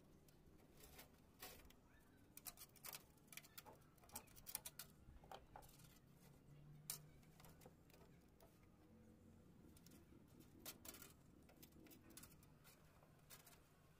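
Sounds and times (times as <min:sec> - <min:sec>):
wire clicking and ticking: 0:02.3 - 0:06.0, 0:09.7 - 0:13.7.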